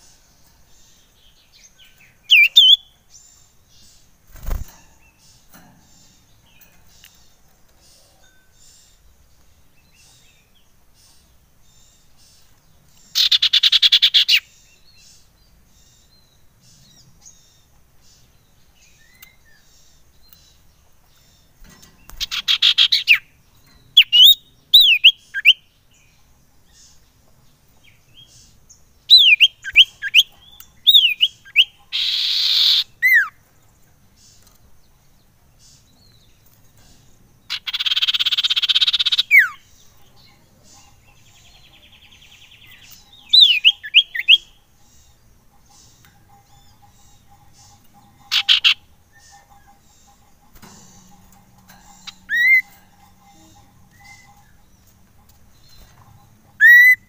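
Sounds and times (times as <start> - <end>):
bird buzzing trills: 3.5 - 9.2, 35.7 - 57.0
bird whistled notes: 56.6 - 57.0.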